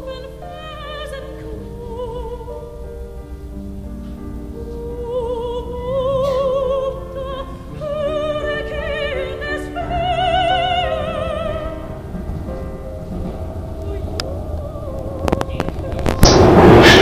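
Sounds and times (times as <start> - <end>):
steady low rumble: 0.0 - 17.0
person singing operatically: 4.8 - 12.1, 13.7 - 16.2.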